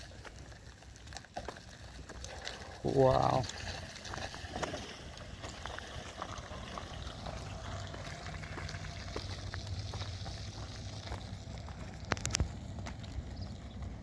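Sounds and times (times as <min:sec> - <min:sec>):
faint clicks and ticks: 0:00.0 - 0:14.0
low outdoor rumble: 0:00.0 - 0:14.0.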